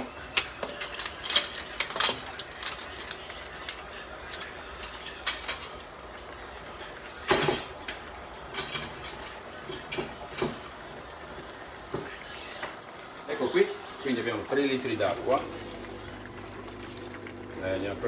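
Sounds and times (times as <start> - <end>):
kitchen things clinking: 0.3 - 12.2.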